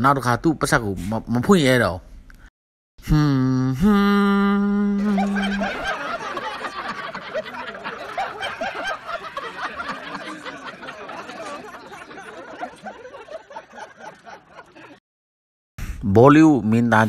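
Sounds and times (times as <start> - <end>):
canned audience laughter: 5.0 - 15.0.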